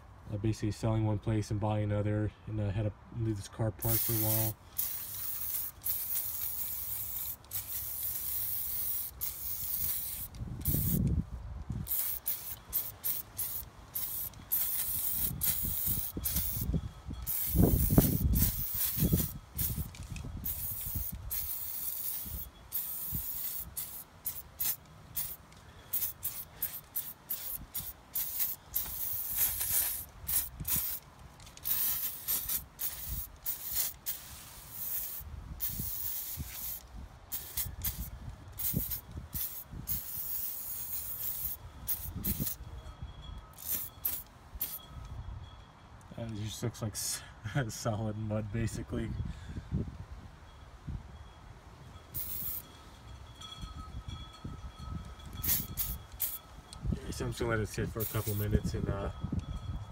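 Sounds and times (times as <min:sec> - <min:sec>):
aerosol can spraying: 0:03.9 - 0:11.0, 0:11.9 - 0:31.0, 0:31.6 - 0:42.6, 0:43.6 - 0:44.8, 0:52.2 - 0:52.6, 0:55.4 - 0:56.4, 0:58.0 - 0:58.5.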